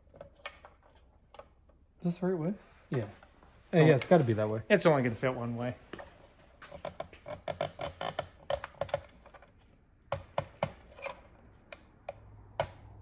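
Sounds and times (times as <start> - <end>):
small plastic clicks and taps: 11.6 - 13.0.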